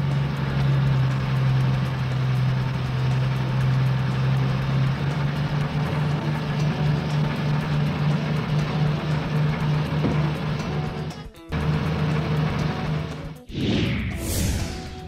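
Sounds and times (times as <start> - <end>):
truck engine idling: 0.0 - 13.4.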